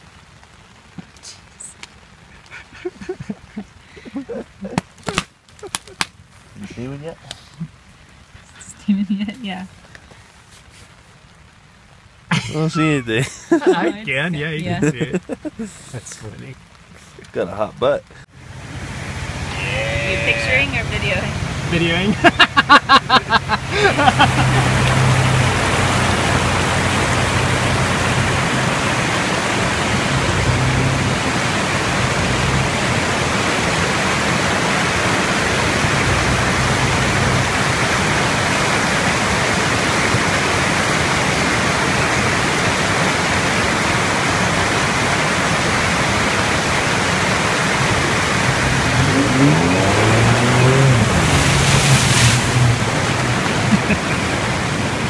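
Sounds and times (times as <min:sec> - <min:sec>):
creek rushing over rocks: 0:00.0 - 0:55.0
car engine humming and revving: 0:18.2 - 0:55.0
water splashing spray: 0:23.0 - 0:55.0.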